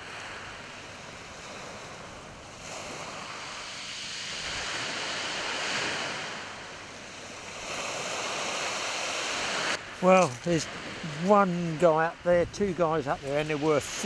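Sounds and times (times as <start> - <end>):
waves washing on shingle beach: 0.0 - 14.0.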